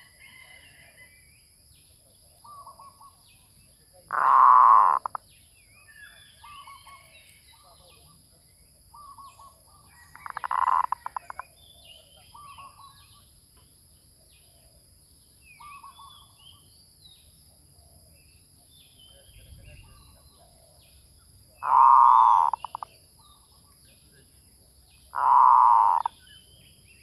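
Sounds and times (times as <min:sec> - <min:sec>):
small birds chirping: 0:01.3 - 0:27.0
doves cooing: 0:21.6 - 0:22.8, 0:25.2 - 0:26.1.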